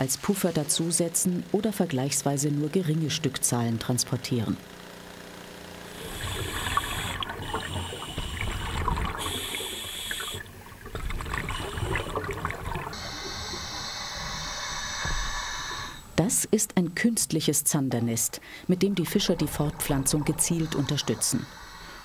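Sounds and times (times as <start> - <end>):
water bubbling and gurgling: 6.0 - 13.8, 18.8 - 21.3.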